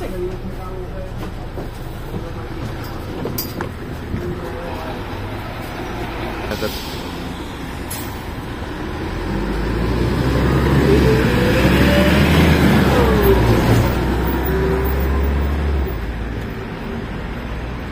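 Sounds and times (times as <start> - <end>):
bus diesel engine: 0.0 - 17.9
engine whine: 2.8 - 17.2.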